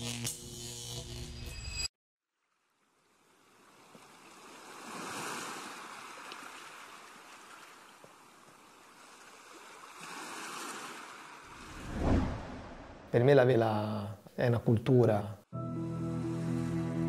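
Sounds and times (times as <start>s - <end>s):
sea water lapping: 3.0s - 11.8s.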